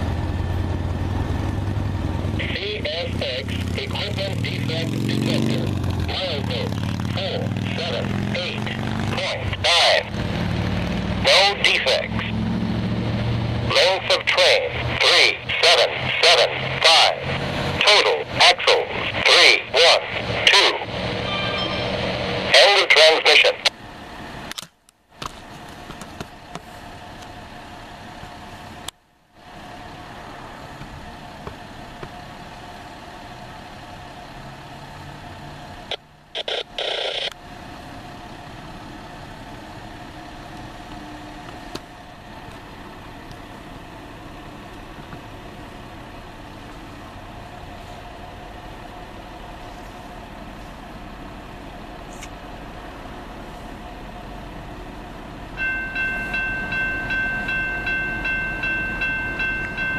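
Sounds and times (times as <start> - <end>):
engine hum: 0.0 - 59.9
steady mid-pitched tone: 13.8 - 23.6.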